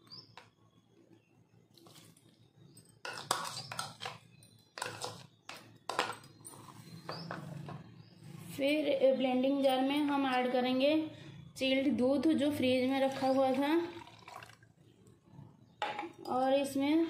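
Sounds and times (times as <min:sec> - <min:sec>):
spoon scraping and clinking: 0:02.8 - 0:07.2.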